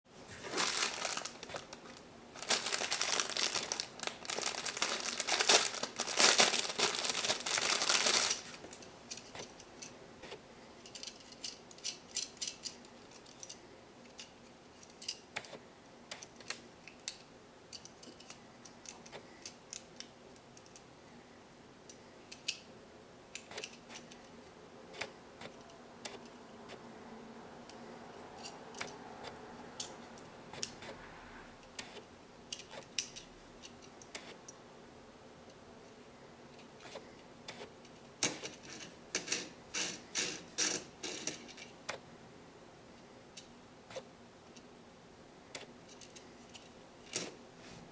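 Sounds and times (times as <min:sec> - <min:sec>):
plastic bag crinkling: 0:00.3 - 0:08.8
plastic toy parts clicking: 0:10.8 - 0:20.8, 0:22.3 - 0:22.7, 0:23.3 - 0:24.3, 0:31.8 - 0:34.3.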